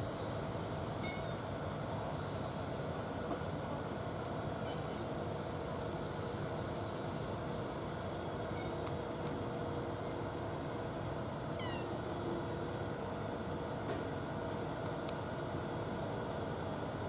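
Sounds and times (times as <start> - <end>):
cat meowing: 11.5 - 12.0.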